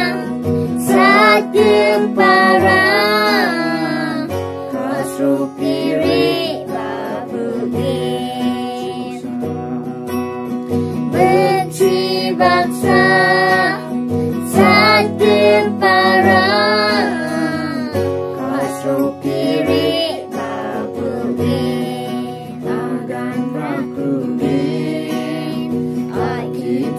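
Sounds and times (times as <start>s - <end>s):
people singing together: 0.0s - 26.9s
strummed acoustic guitar: 0.0s - 26.9s.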